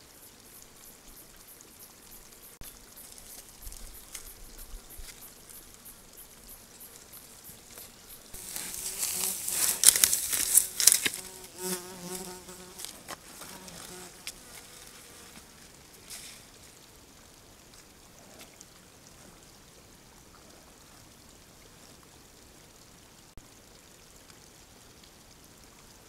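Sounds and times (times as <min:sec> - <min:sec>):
close crackling and rustling: 0:02.7 - 0:16.8
fly buzzing: 0:04.2 - 0:15.4.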